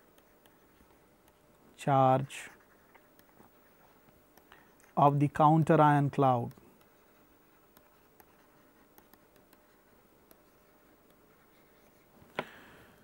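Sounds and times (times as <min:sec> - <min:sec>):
stylus tapping on tablet screen: 0:06.4 - 0:11.3.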